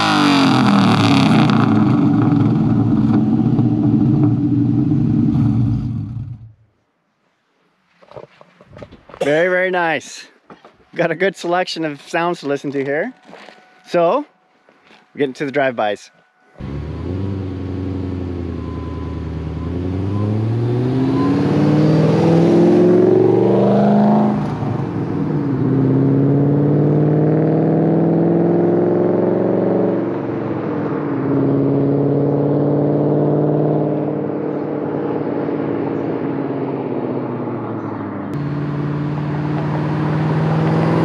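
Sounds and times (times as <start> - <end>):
car engine accelerating hard: 0.0 - 6.6, 16.6 - 41.0.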